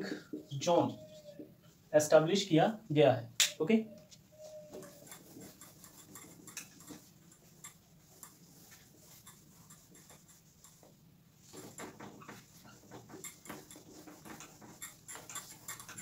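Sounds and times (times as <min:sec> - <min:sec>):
duster rubbing on whiteboard: 0:04.2 - 0:16.0.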